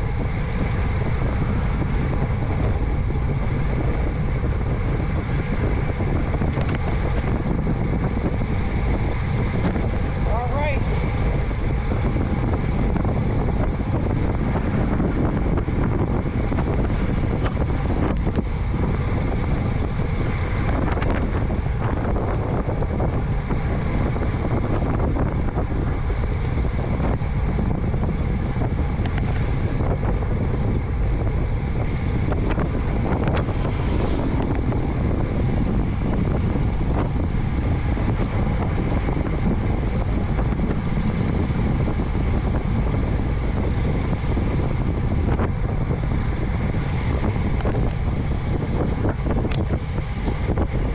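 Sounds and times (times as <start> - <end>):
wind buffeting microphone: 0.0 - 50.9
brief high chirps: 13.2 - 13.8.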